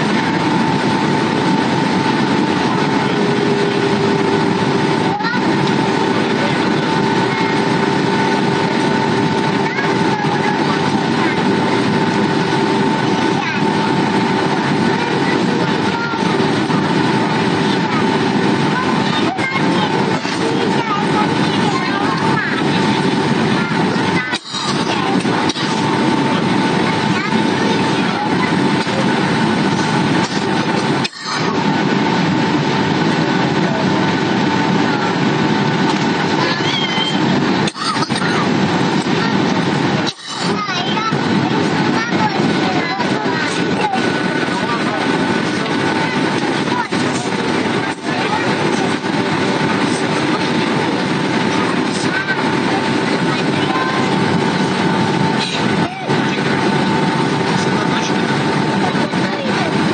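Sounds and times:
engine and airflow rush: 0.0s - 59.9s
thin steady whine: 0.0s - 59.9s.

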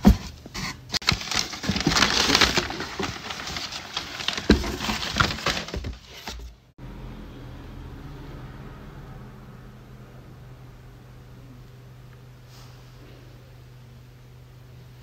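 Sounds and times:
packaging crinkling: 1.0s - 6.5s.

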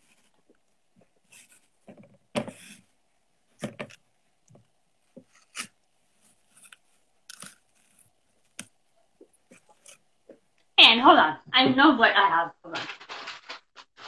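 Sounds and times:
snack packaging clicks and rustles: 12.7s - 14.0s.

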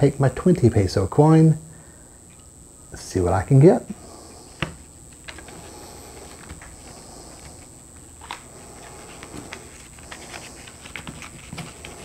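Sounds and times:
paper rustling: 5.2s - 12.0s.

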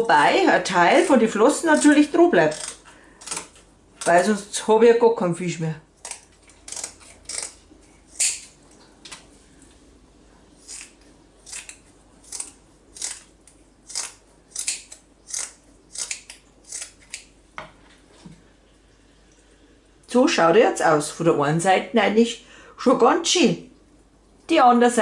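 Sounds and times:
scissors snipping: 1.7s - 4.3s, 6.0s - 8.6s, 10.6s - 17.3s.

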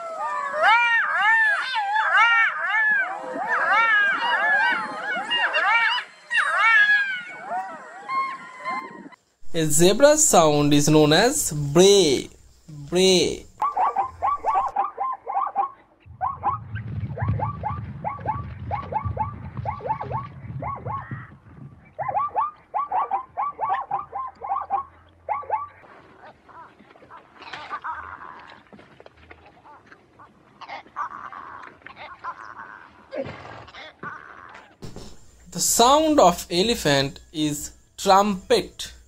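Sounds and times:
zebra yelping barks: 13.6s - 21.4s, 22.0s - 25.8s.

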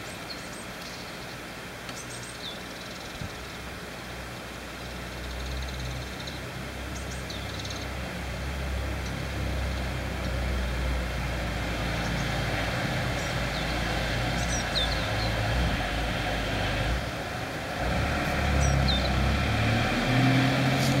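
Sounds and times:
small birds chirping: 0.0s - 8.0s, 11.6s - 16.0s, 18.1s - 19.5s.

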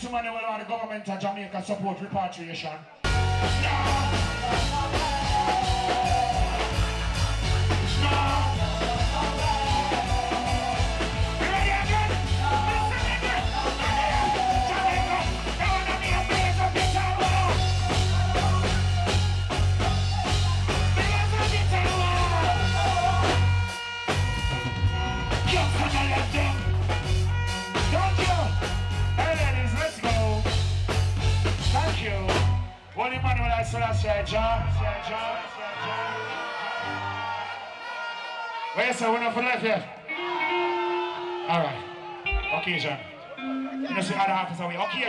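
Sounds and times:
live reggae band: 2.9s - 45.0s
person singing: 3.1s - 23.6s
pulsing bass line: 3.1s - 34.8s.

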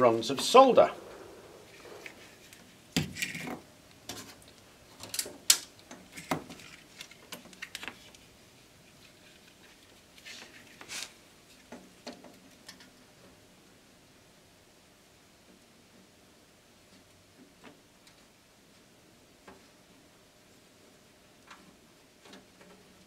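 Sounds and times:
light clicks taps and rustles: 21.4s - 23.0s.

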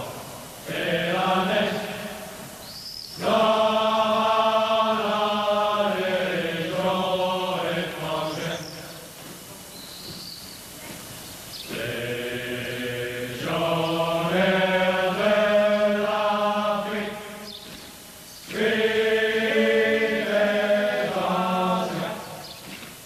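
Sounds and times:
chanted vocal music: 0.0s - 9.4s, 11.5s - 23.0s.

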